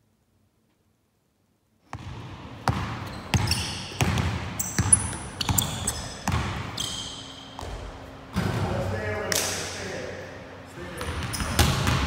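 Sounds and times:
basketball bouncing on hardwood floor: 0:01.9 - 0:06.7, 0:07.6 - 0:08.5, 0:11.0 - 0:12.0
sneakers squeaking on floor: 0:01.9 - 0:08.6, 0:11.0 - 0:12.0.

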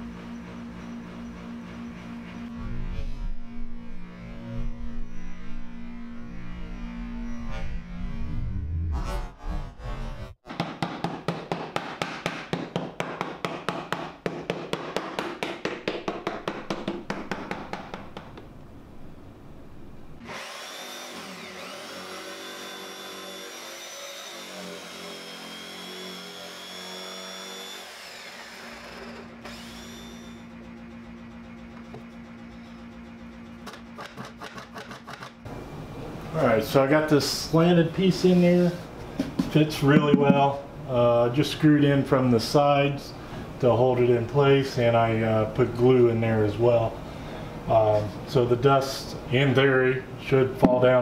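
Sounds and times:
low steady hum: 0:00.0 - 0:10.3, 0:18.0 - 0:20.2
jigsaw cutting plywood: 0:20.2 - 0:30.4.

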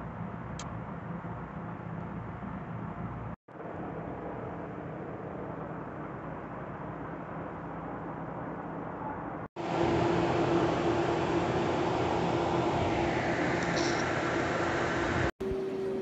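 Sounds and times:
steady background noise: 0:00.0 - 0:16.0
steady hum: 0:00.0 - 0:16.0.

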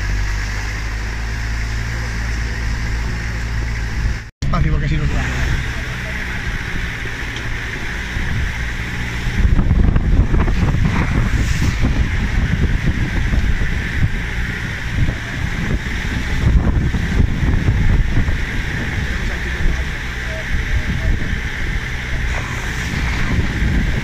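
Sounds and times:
vehicle engine running: 0:00.0 - 0:24.0
wind noise on microphone: 0:05.1 - 0:24.0.

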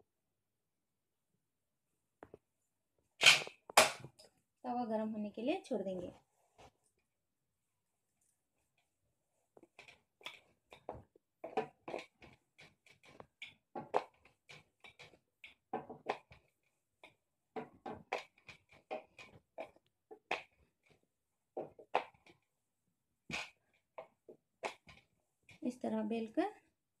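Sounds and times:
rolling pin knocking and rubbing: 0:09.5 - 0:22.5.

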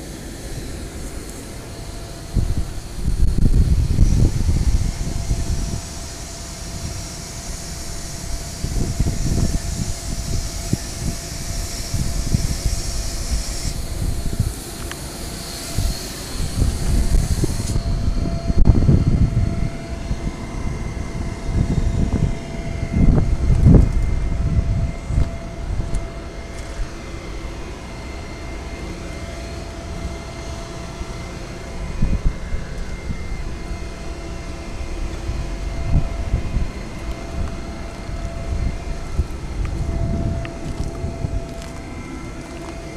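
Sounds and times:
machinery hum with whine: 0:00.0 - 0:42.9
low rumble: 0:31.6 - 0:42.9.

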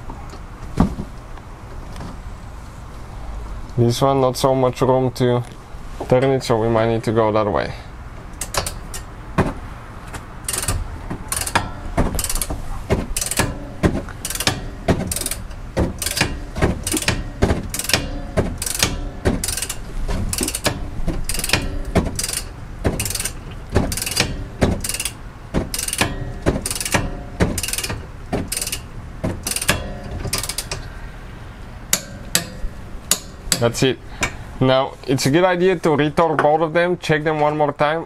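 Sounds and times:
torque wrench ratchet clicking: 0:08.4 - 0:09.1, 0:10.4 - 0:12.5, 0:13.1 - 0:13.6, 0:14.2 - 0:30.9.

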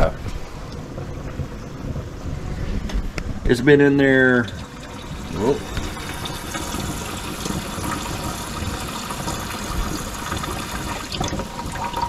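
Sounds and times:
water bubbling: 0:04.4 - 0:12.0.

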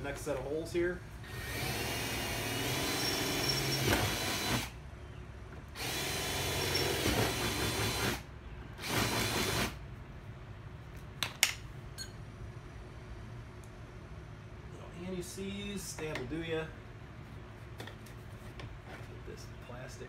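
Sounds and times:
cordless drill drilling plastic: 0:01.3 - 0:04.8, 0:05.8 - 0:08.2.

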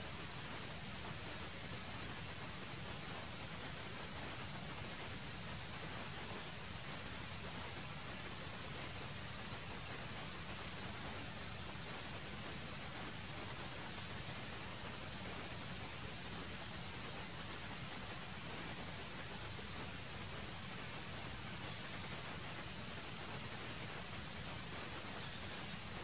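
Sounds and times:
insects droning: 0:00.0 - 0:26.0
soft background hiss: 0:00.0 - 0:26.0
rapidly pulsing chirp: 0:21.6 - 0:22.4, 0:24.6 - 0:26.0.

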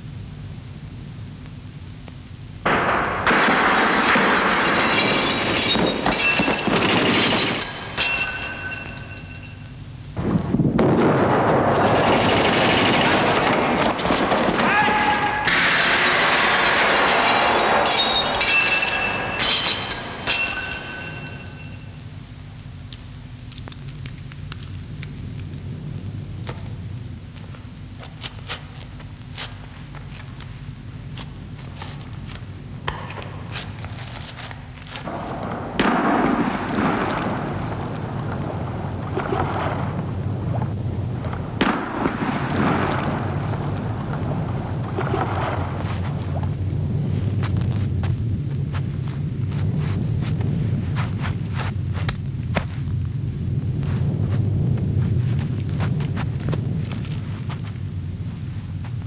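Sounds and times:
steady low rumble: 0:00.0 - 0:14.7, 0:15.5 - 0:59.0
flares cracking: 0:00.8 - 0:09.5, 0:10.1 - 0:21.8, 0:22.5 - 0:59.0
glass shattering: 0:03.3 - 0:09.7, 0:15.5 - 0:22.0
glass shards clinking: 0:04.0 - 0:09.7, 0:15.7 - 0:22.0.

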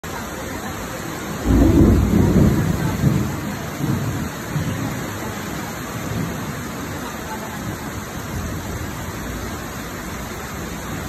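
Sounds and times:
heavy rain pouring: 0:00.0 - 0:11.0
low rumble of thunder: 0:01.3 - 0:07.0.

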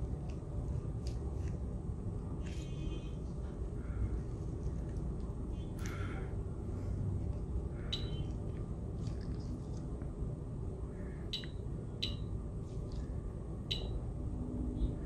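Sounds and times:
low background rumble: 0:00.0 - 0:15.0
short high beeps: 0:07.9 - 0:08.2.

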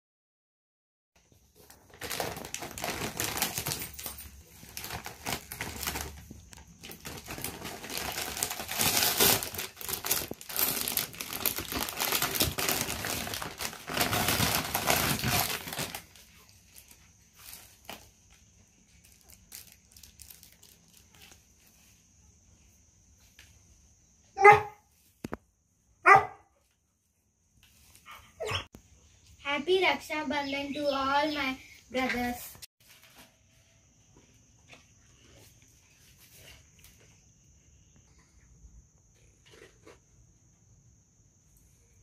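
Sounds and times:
cellophane crinkling and rustling: 0:01.2 - 0:21.9
dog barking: 0:24.4 - 0:24.8, 0:26.0 - 0:26.5.

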